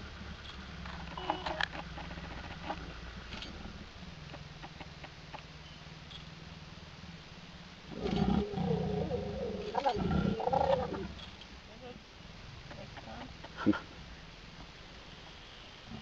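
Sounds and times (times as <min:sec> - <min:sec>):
leopards growling: 0:07.9 - 0:11.4.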